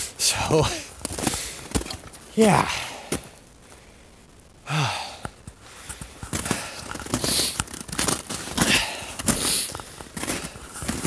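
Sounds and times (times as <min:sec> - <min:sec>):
hard breathing: 0:00.7 - 0:01.8, 0:02.7 - 0:07.6, 0:08.4 - 0:11.0
man grunting sigh: 0:04.6 - 0:05.2.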